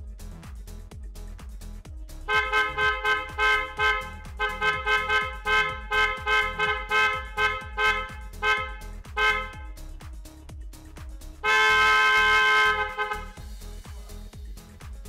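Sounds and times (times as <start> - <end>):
background music beat: 0.0 - 15.0
two-tone electric horn honks: 2.3 - 9.7, 11.4 - 13.4.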